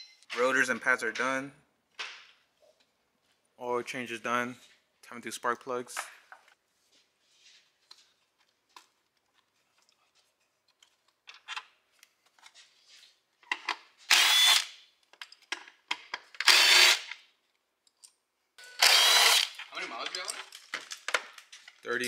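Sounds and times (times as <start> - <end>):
tools and parts clicking: 10.6 - 12.6, 13.4 - 17.2, 17.8 - 22.0
handheld power tool bursts: 14.1 - 14.8, 16.4 - 17.2, 18.6 - 19.6.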